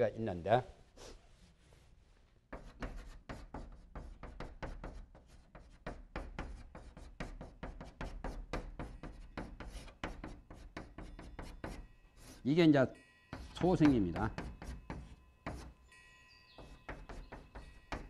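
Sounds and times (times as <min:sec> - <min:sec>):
chalk tapping and scratching: 0:02.5 - 0:12.5, 0:13.3 - 0:15.8, 0:16.6 - 0:18.0.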